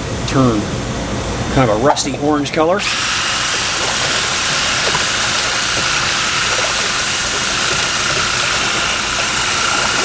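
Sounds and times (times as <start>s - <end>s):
liquid churning: 2.8s - 10.0s.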